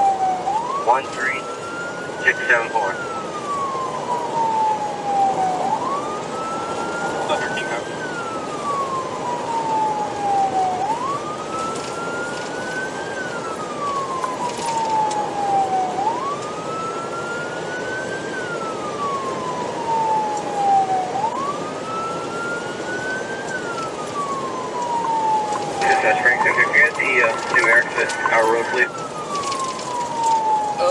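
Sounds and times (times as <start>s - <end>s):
car road noise: 0.0s - 30.9s
police siren wailing: 0.0s - 30.9s.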